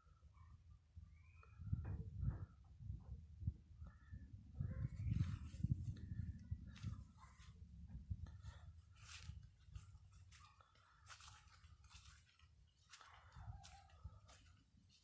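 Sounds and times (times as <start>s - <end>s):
soft scratches and crunches: 4.9s - 15.0s.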